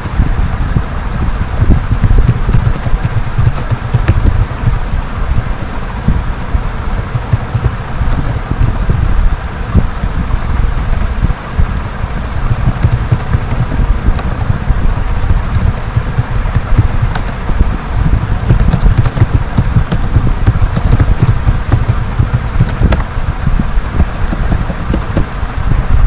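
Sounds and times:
low rumble of microphone noise: 0.0s - 26.0s
keyboard keys clicking: 1.1s - 5.9s, 6.9s - 9.0s, 11.7s - 17.4s, 18.1s - 23.1s, 24.0s - 25.3s.

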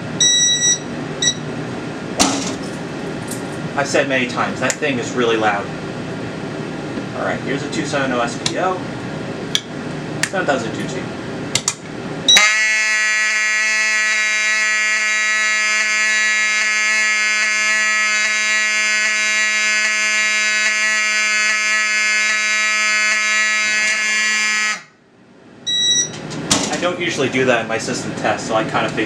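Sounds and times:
fire alarm horn buzzing: 0.2s - 1.4s, 12.3s - 25.0s, 25.7s - 26.2s.

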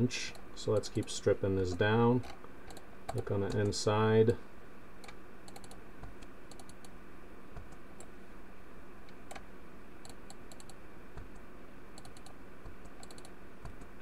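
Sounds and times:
steady low hum: 0.0s - 14.0s
computer mouse and keyboard clicking: 1.7s - 3.8s, 5.0s - 6.9s, 9.3s - 11.4s, 12.0s - 13.9s.

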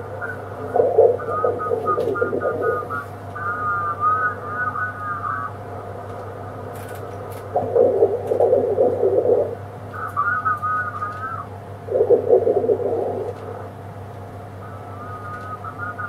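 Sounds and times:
muffled voice-like chatter: 0.0s - 5.6s, 7.5s - 13.7s
warbling sideband radio voices: 0.0s - 13.8s, 14.6s - 16.0s
steady radio hum: 0.0s - 16.0s.

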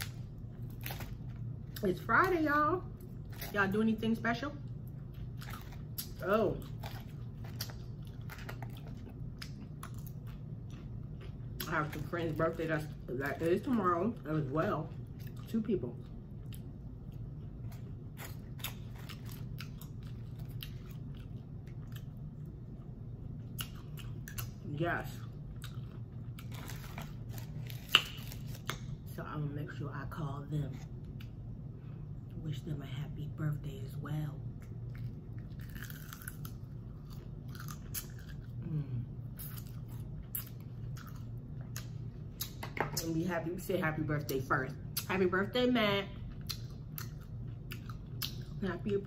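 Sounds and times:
chewing crunchy food: 0.0s - 4.0s, 4.6s - 29.1s, 34.4s - 42.8s, 46.2s - 48.9s.

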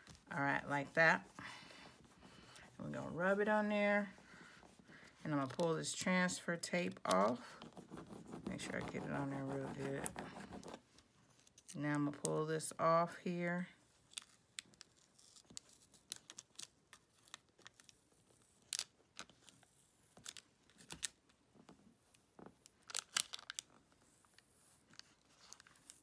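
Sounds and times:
tape crinkling and tearing: 14.0s - 21.3s, 22.6s - 26.0s.

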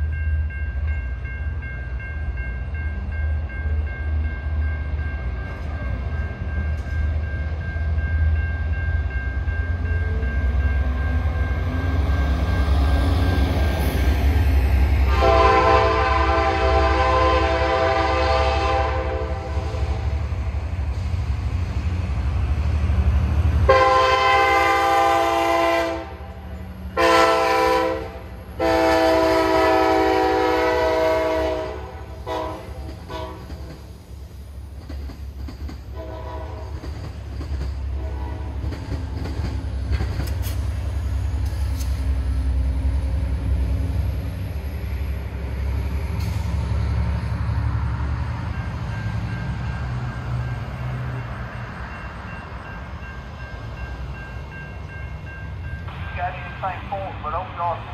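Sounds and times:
locomotive air horn blasts: 15.1s - 20.0s, 23.7s - 26.2s, 27.0s - 33.5s, 36.0s - 36.7s, 38.0s - 38.6s
locomotive engine rumble: 35.9s - 57.9s.

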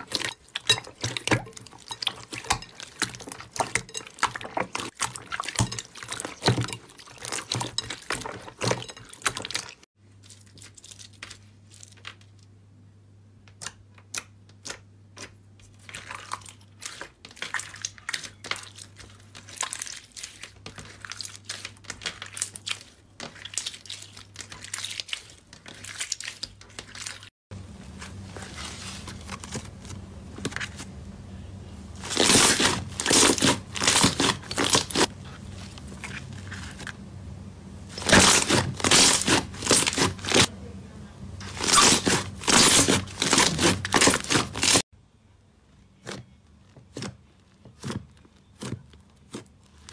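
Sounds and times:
slime crackling and squishing: 0.0s - 12.4s, 14.0s - 31.0s, 31.9s - 37.1s, 37.8s - 40.5s, 41.4s - 44.9s, 46.0s - 49.9s
faint low hum: 27.5s - 49.1s.

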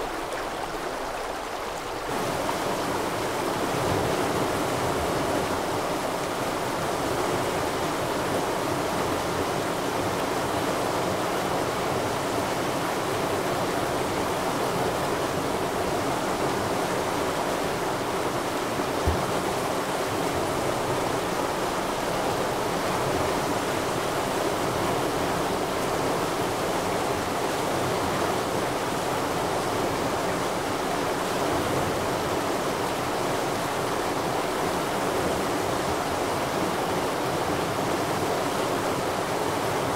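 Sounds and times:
rushing stream: 0.0s - 39.9s
low thump: 19.0s - 19.4s.

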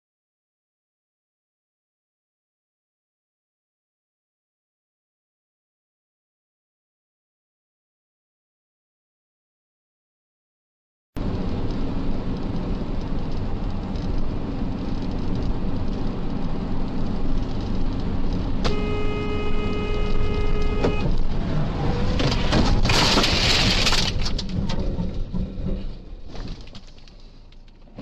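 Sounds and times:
truck road and engine noise: 11.2s - 28.0s
horn blaring: 18.6s - 22.3s
crash with scraping debris: 22.0s - 27.4s.

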